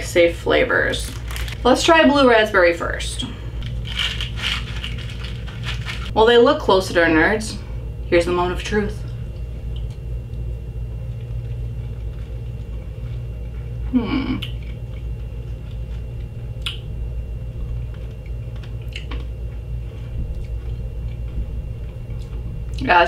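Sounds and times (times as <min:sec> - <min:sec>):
low electrical hum: 0:00.0 - 0:23.0
person chewing candy: 0:01.1 - 0:01.6, 0:03.6 - 0:06.1, 0:11.1 - 0:16.9, 0:17.8 - 0:22.8
person humming: 0:13.9 - 0:14.5.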